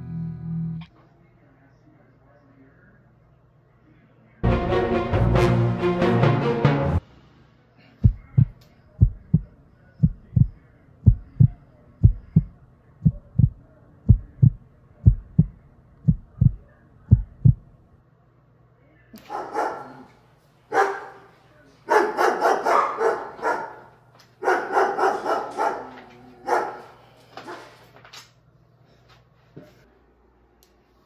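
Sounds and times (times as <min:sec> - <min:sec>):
heartbeat thumps: 0:08.0 - 0:17.7.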